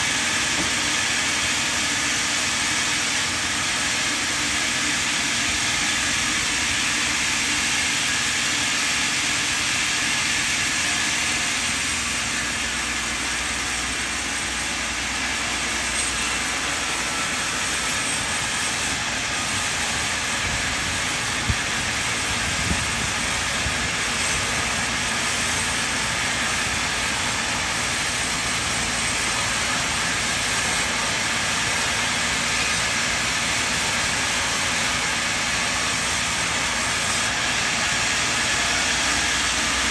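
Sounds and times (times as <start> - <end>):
band saw cutting timber: 0.0 - 39.9.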